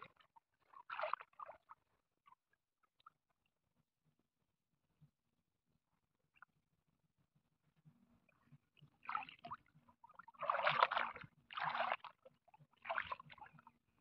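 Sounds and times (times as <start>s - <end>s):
wading splashes in shallow water: 0.0s - 2.4s, 8.8s - 14.0s.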